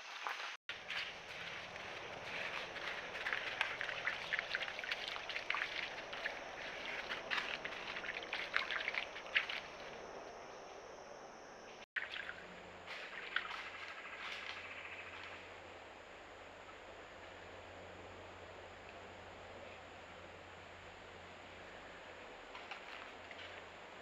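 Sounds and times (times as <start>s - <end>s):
quiet outdoor ambience: 0.0s - 24.0s
deer footsteps on dry leaves: 0.1s - 10.0s, 12.9s - 15.1s.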